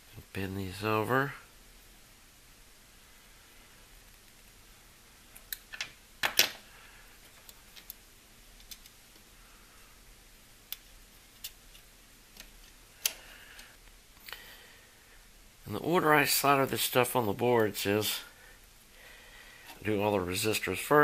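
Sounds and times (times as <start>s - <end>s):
pliers clicking on wire leads: 10.7s - 14.3s.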